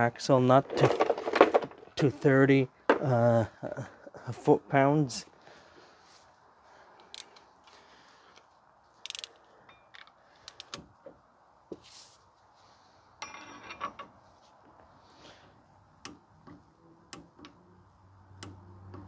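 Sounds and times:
torque wrench ratchet clicks: 9.0s - 9.4s.

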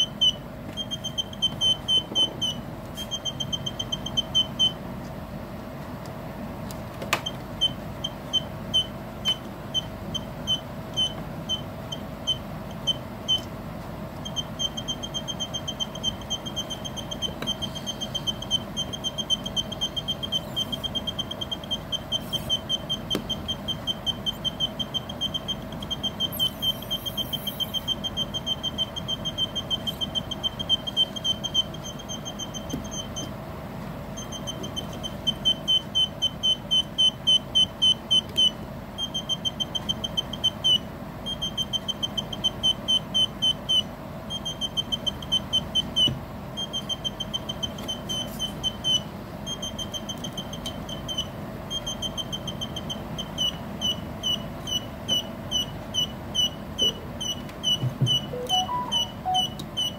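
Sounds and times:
electronic bird chirps: 14.3s - 33.3s, 53.3s - 59.9s.

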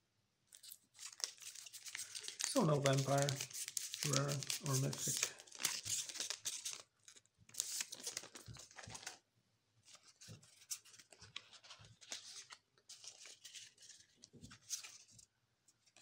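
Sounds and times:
cards rustling: 0.6s - 9.2s, 9.9s - 15.1s
foil wrapper crinkling and tearing: 0.6s - 9.2s.

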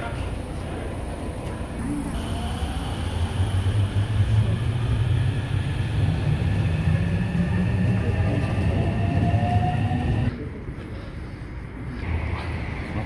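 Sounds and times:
rising train whine: 0.0s - 10.4s
train rumble: 0.0s - 10.4s.

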